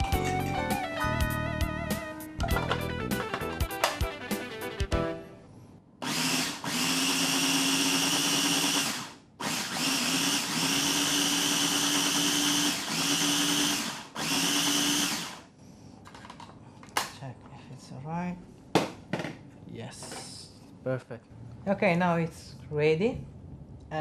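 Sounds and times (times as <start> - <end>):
food processor motor whine: 6.0 - 15.5.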